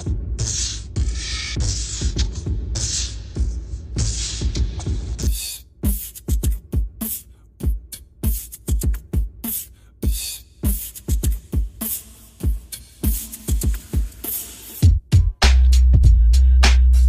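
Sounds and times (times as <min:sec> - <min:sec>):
deep kick drums: 0:00.0 - 0:02.8, 0:03.4 - 0:07.0, 0:07.6 - 0:09.4, 0:10.0 - 0:11.8, 0:14.8 - 0:16.4
hip-hop beat: 0:00.0 - 0:17.0
snare and hi-hat hits: 0:00.0 - 0:17.0.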